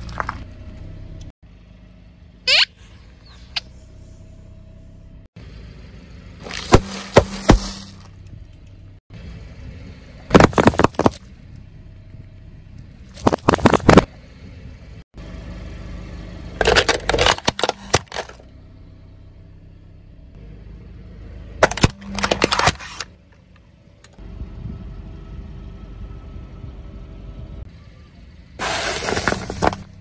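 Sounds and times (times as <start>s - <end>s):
objects crunching under tyre: 0.0s - 0.8s, 6.4s - 8.3s, 10.3s - 11.3s, 13.0s - 14.1s, 16.6s - 18.5s, 21.6s - 23.2s, 28.6s - 30.0s
car engine running: 0.0s - 30.0s.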